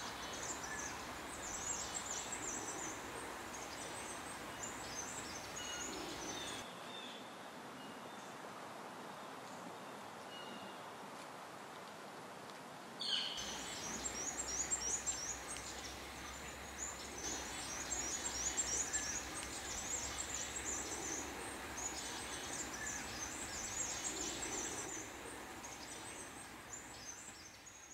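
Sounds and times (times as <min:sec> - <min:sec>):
small birds chirping: 0:00.0 - 0:06.6, 0:13.4 - 0:27.9
low background rumble: 0:13.4 - 0:27.5.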